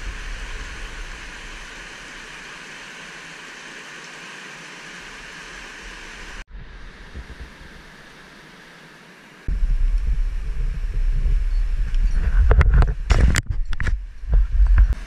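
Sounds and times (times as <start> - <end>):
water rushing: 0.0 - 15.0
low bumps: 9.5 - 15.0.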